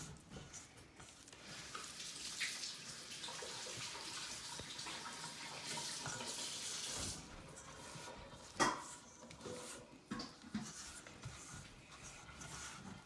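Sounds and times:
tap water running into sink: 1.4s - 9.0s.

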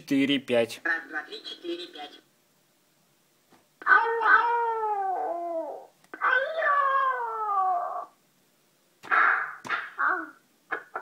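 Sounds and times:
toy cat electronic wails: 3.8s - 8.1s.

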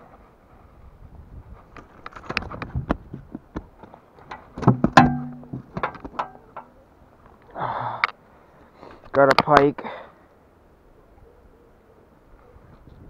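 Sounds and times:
knocks on boat and gear: 4.6s - 6.3s.

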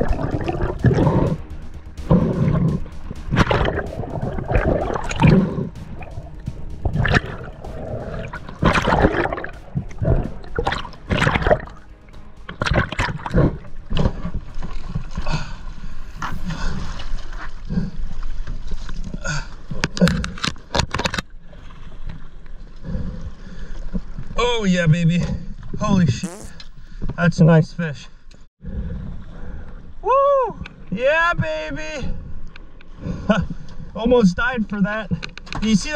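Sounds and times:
water splashing and gurgling: 0.0s - 19.2s.

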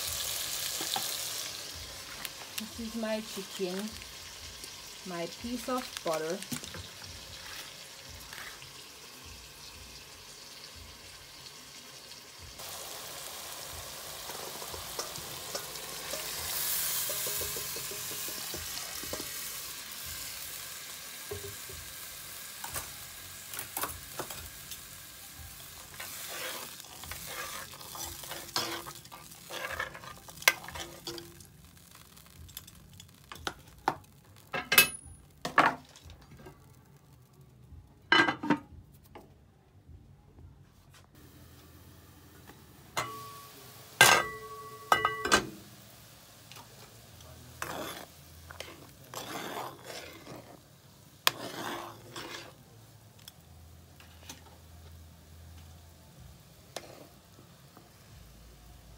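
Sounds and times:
food sizzling in a pot: 0.0s - 38.3s, 41.1s - 58.9s
spoon scraping a pot: 25.9s - 31.3s, 47.6s - 50.6s, 51.2s - 52.6s, 56.7s - 57.2s.

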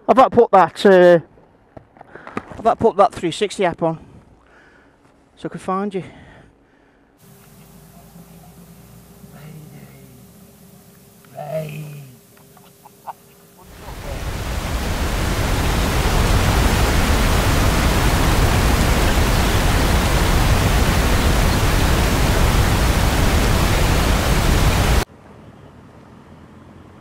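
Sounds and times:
wind noise on microphone: 13.7s - 25.0s.

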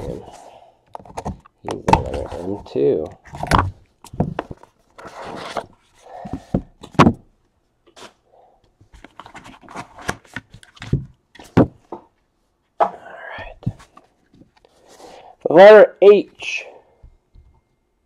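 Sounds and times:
cardboard scraping and sliding: 3.3s - 6.6s.

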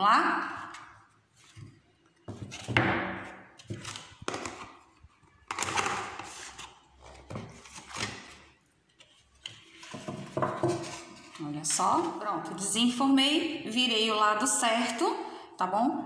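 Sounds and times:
rustling and scraping: 9.0s - 12.0s.

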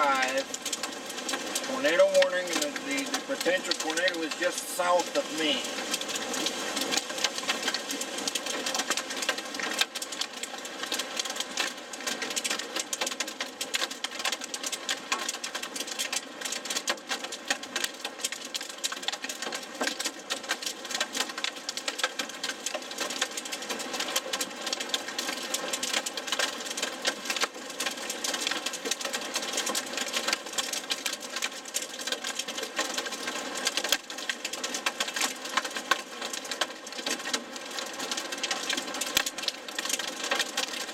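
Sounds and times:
rain and hail pelting vehicle roof: 0.0s - 40.9s.

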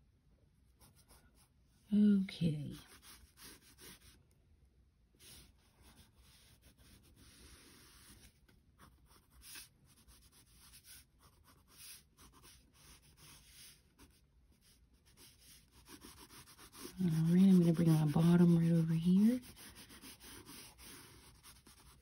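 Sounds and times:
crayon rubbing on paper: 2.6s - 4.2s, 5.2s - 22.0s.

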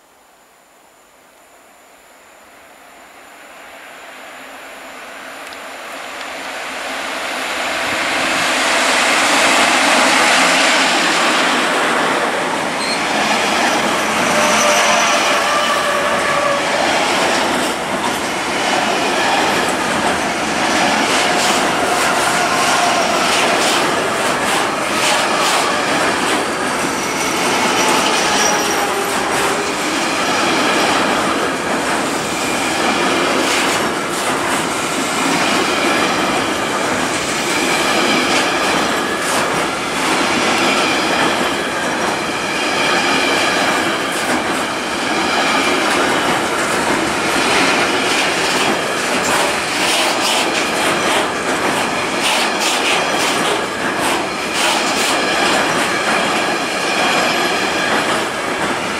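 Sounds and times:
electric locomotive passing: 2.6s - 58.9s
wheels rumbling on rail: 5.4s - 58.9s
thin squeals: 12.8s - 13.1s, 14.1s - 16.6s.

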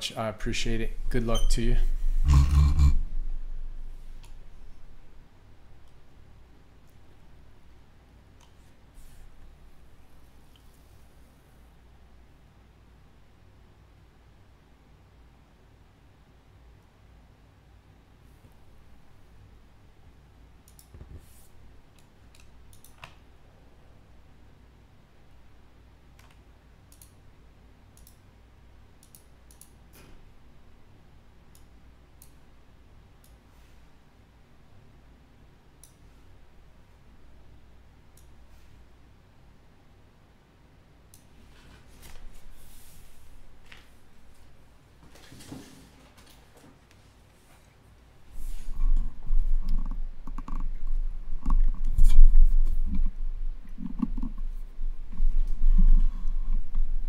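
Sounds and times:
low hum: 0.0s - 6.4s, 48.3s - 57.0s
low thumps: 0.9s - 4.5s
faint sharp clicks: 20.6s - 21.0s, 26.2s - 27.2s, 28.0s - 28.2s, 29.0s - 30.1s, 38.2s - 38.4s.

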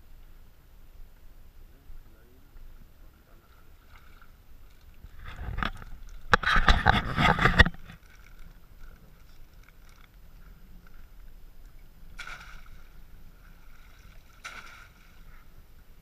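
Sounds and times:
water splashing through trap mesh: 12.2s - 12.8s, 14.3s - 15.1s.

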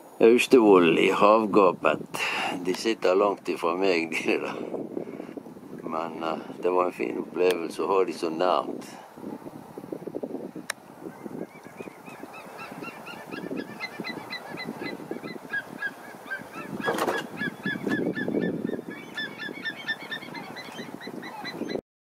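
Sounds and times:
birds yelping: 11.0s - 21.8s.

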